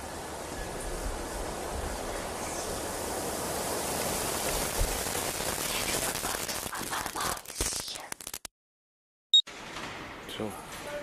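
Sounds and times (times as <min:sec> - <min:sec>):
rain hissing: 0:00.0 - 0:08.5
recording crackles: 0:02.3 - 0:08.5.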